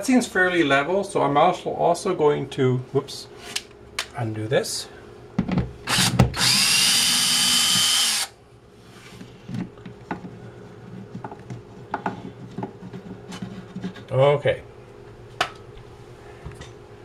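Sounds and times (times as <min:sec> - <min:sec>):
drill clicks: 0:05.9 - 0:08.3
drill motor whining: 0:05.9 - 0:08.3.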